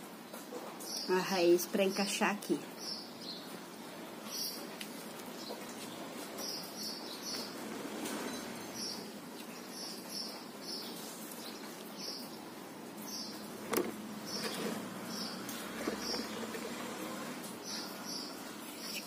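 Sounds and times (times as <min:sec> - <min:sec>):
faint rustling: 0:13.0 - 0:19.0.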